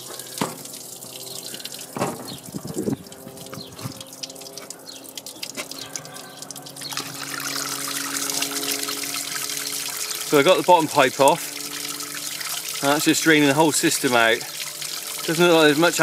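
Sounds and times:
coolant pouring and splashing: 0:00.0 - 0:16.0.

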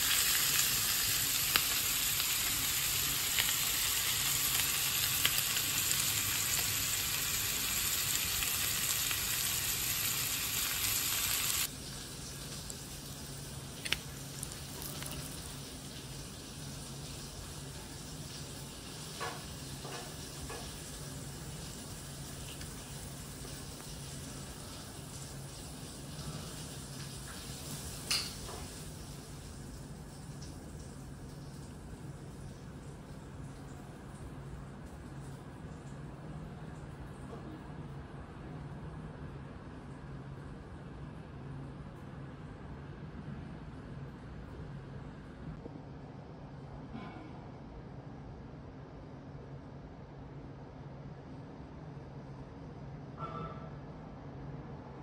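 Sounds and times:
meat sizzling in butter: 0:00.0 - 0:17.6.

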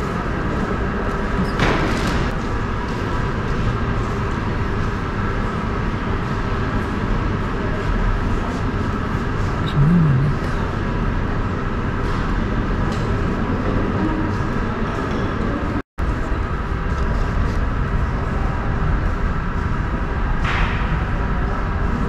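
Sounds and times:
low hall rumble: 0:09.4 - 0:22.0.

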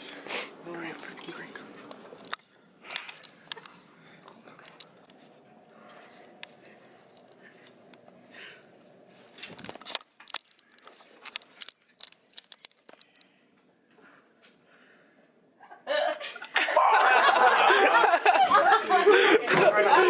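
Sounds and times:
small clicks of movement: 0:09.4 - 0:13.4
voices shouting and laughing: 0:16.4 - 0:20.0.

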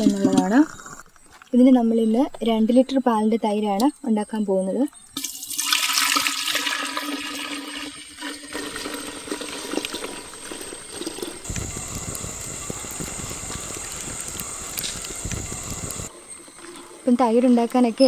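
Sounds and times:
milk pouring into a pot: 0:05.2 - 0:11.5
wood fire crackling: 0:08.2 - 0:18.0.

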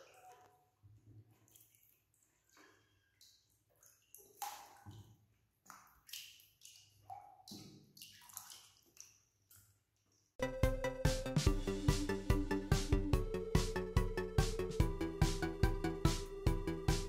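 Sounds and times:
water splashing in a tub: 0:00.0 - 0:09.8
water drips plinking: 0:01.3 - 0:09.7.

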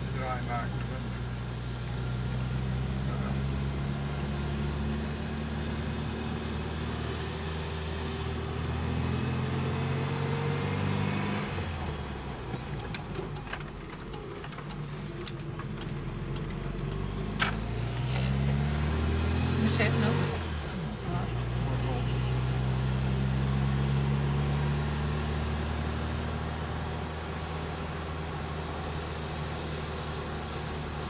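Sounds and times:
car engine from inside cabin: 0:00.0 - 0:31.0
car clicks and knocks on bumpy road: 0:12.4 - 0:18.6.

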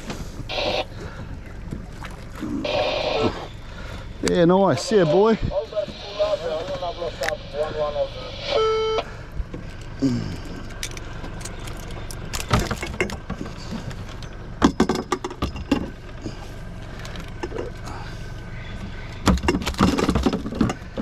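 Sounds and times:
outboard motor running: 0:00.0 - 0:21.0
metallic jangling and clattering: 0:10.7 - 0:13.2.

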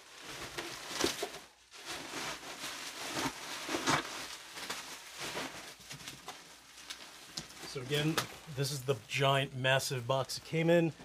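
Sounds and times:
plastic bag crinkling and rustling: 0:00.0 - 0:11.0.

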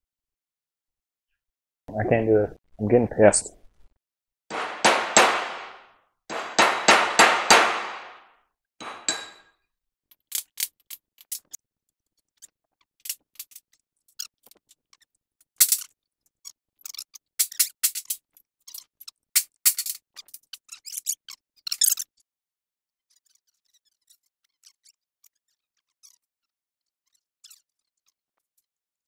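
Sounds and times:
hammer striking metal: 0:04.5 - 0:09.5.

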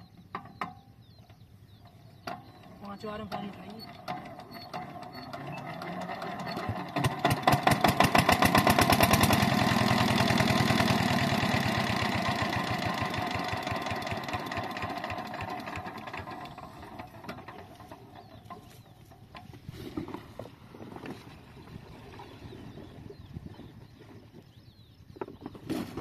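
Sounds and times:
diesel engine chugging: 0:01.5 - 0:19.3.

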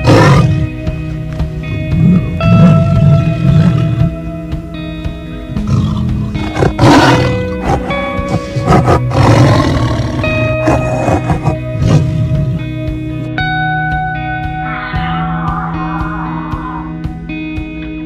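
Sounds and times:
tiger roaring: 0:00.0 - 0:00.7, 0:02.0 - 0:04.1, 0:05.6 - 0:12.6
background music: 0:00.0 - 0:18.0.

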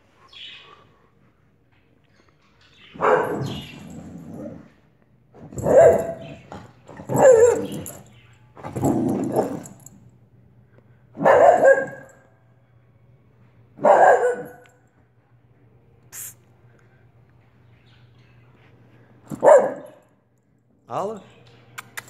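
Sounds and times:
dog barking: 0:03.0 - 0:03.7, 0:05.5 - 0:06.4, 0:07.0 - 0:08.0, 0:11.2 - 0:12.2, 0:13.8 - 0:14.7, 0:19.3 - 0:20.0.

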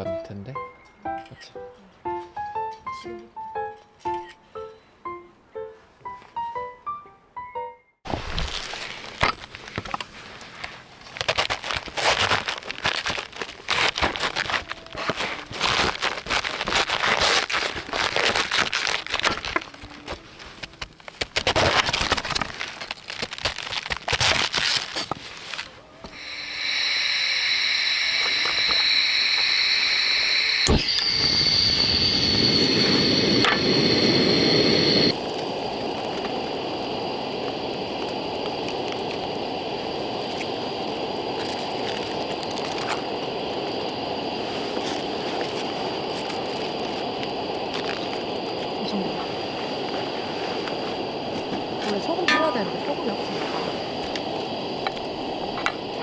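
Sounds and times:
gas burner hissing: 0:08.1 - 0:56.0
knife crunching through cabbage: 0:11.0 - 0:19.8, 0:20.7 - 0:25.7
pan of water hissing: 0:26.0 - 0:56.0.

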